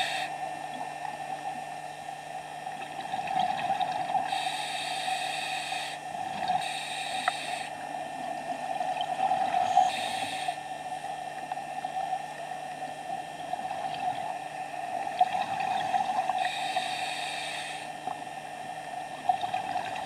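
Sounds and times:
steady hum: 0.0 - 20.0
exhaled bubbles underwater: 2.7 - 4.5, 6.1 - 6.7, 8.5 - 10.2, 13.5 - 16.5, 19.2 - 20.0.

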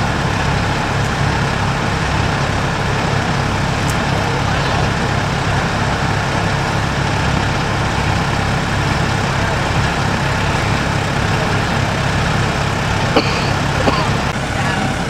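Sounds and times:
diesel engine running steadily: 0.0 - 15.0.

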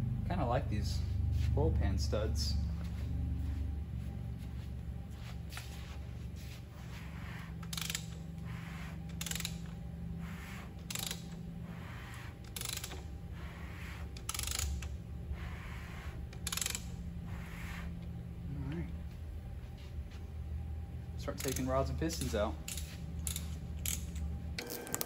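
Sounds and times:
low hum: 0.0 - 25.0
socket ratchet clicking: 7.6 - 8.4, 9.0 - 9.8, 10.8 - 11.4, 12.4 - 13.1, 14.1 - 14.9, 16.3 - 17.0, 21.4 - 21.7, 22.6 - 24.2.

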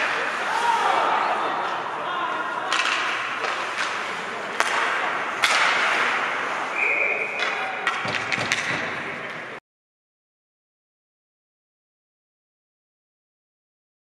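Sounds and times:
hockey sticks and puck clacking: 0.0 - 1.0, 2.6 - 9.6
voices: 0.0 - 9.5
referee's whistle: 6.7 - 7.6.

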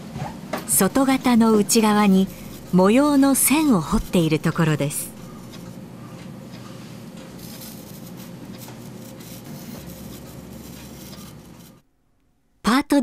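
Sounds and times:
steel tool scratching plaster: 8.9 - 11.8.

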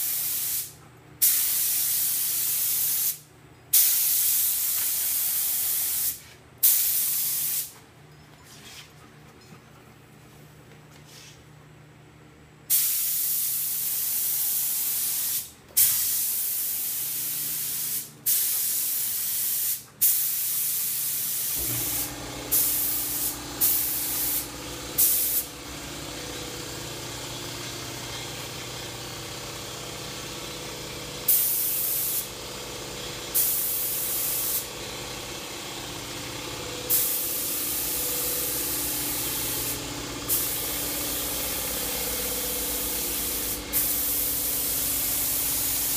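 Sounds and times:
air paint spray gun spraying: 0.0 - 7.8, 12.7 - 45.9
steady machine hum: 21.6 - 45.9.

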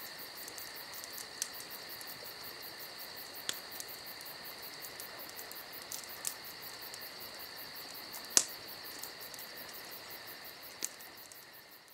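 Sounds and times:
crickets chirping: 0.0 - 11.9.

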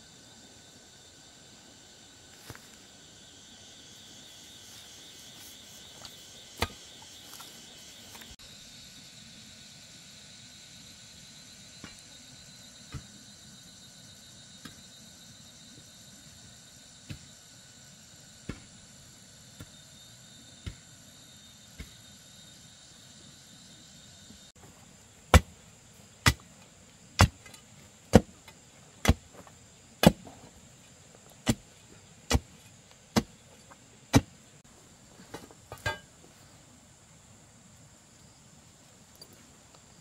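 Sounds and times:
high insect trill: 0.0 - 40.0
hand tool striking: 35.7 - 36.1.

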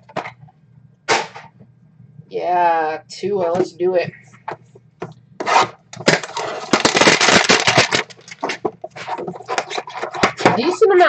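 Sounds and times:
crackly rustling: 4.1 - 11.0
cardboard rubbing and scraping: 5.4 - 6.8.

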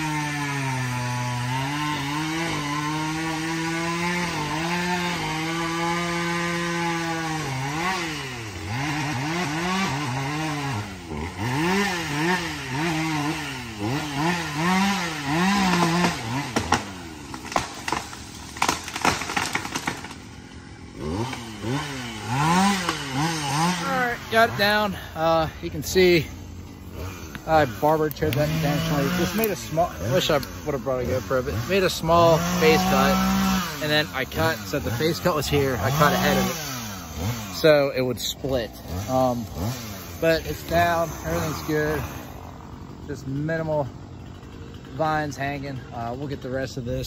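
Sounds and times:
chainsaw cutting and revving: 0.0 - 47.0
tree trunk cracking: 13.0 - 24.6, 26.8 - 37.6.

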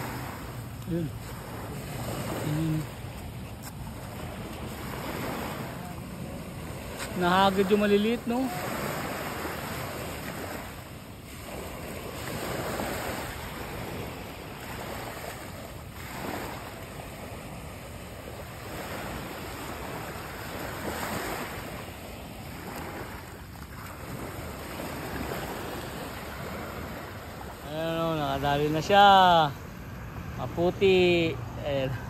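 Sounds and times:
small waves washing over rocks: 0.0 - 28.7.

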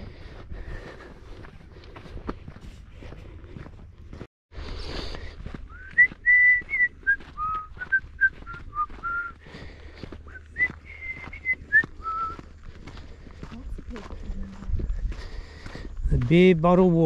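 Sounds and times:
person whistling a tune: 5.7 - 9.4, 10.3 - 12.4.

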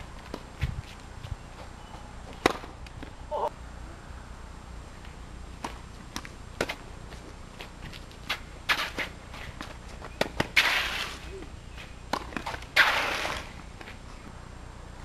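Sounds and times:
racket hitting tennis ball: 2.4 - 3.1, 8.2 - 11.3, 12.1 - 14.0.

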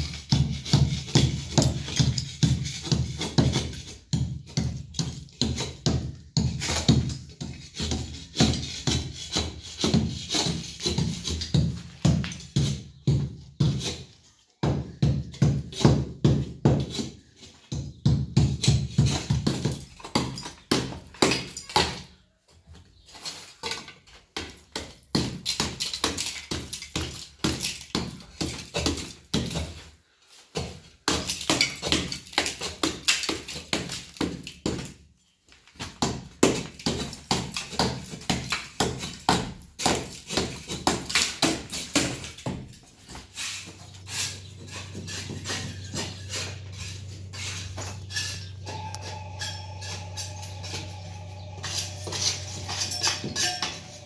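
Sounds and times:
plaster chipped and scraped off wall: 0.0 - 14.2, 15.0 - 22.0, 23.0 - 35.0, 35.7 - 48.5
low steady hum: 44.3 - 54.0.

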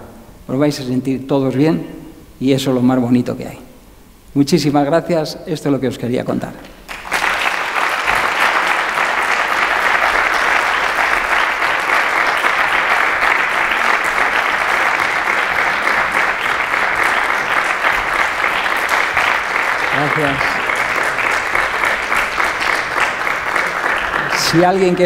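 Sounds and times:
large audience applauding: 6.9 - 25.0.

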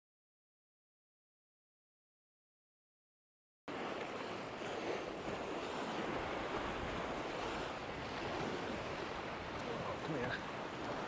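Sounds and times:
surf washing against rocks: 3.7 - 11.0
wind on microphone: 4.5 - 11.0.

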